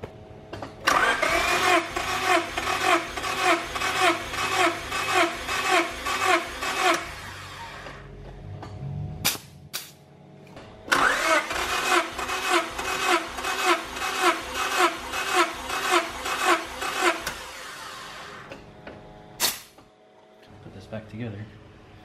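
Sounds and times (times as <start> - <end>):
engine starter cranking whine: 0.8 - 8.1, 10.8 - 18.6.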